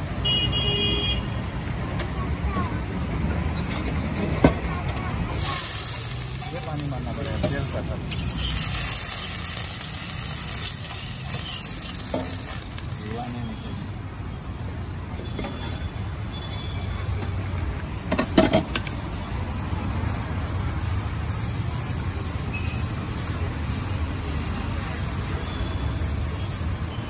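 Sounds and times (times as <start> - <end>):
water sizzling on hot griddle: 5.2 - 15.5, 18.6 - 27.0.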